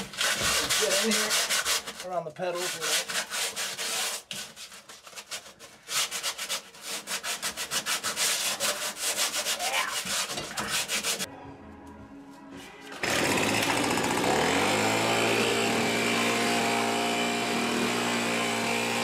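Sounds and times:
sandpaper rubbing on sheet steel: 0.0 - 11.3.

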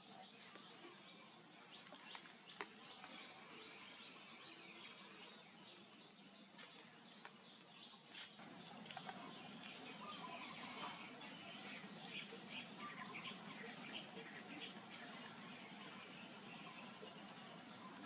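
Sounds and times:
high-pitched insect drone: 8.4 - 18.0
high chirp: 9.7 - 13.3.

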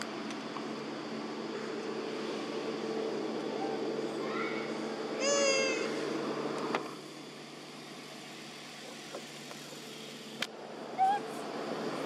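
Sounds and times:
steady hum: 0.0 - 12.0
monkey high-pitched meow-like call: 5.2 - 6.0, 11.0 - 11.4.

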